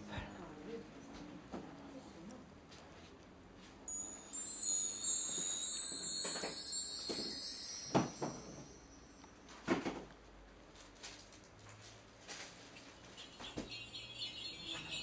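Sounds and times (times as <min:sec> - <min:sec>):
metal chimes ringing: 0:00.0 - 0:00.6, 0:03.9 - 0:09.5, 0:13.1 - 0:15.0.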